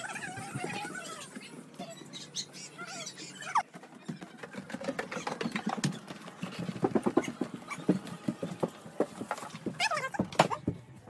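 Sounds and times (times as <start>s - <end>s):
short squeaky calls: 1.8s - 3.6s
footsteps on wooden floor: 5.4s - 10.8s.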